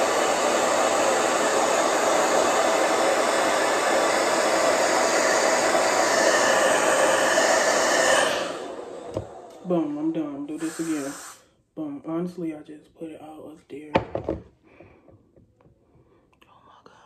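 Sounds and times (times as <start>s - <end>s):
blow dryer running: 0.0s - 11.4s.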